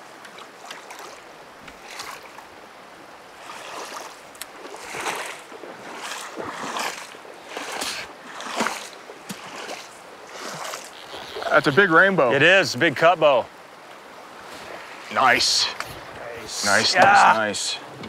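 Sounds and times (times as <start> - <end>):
splashing steps in shallow water: 0.2 - 2.5, 3.3 - 11.7.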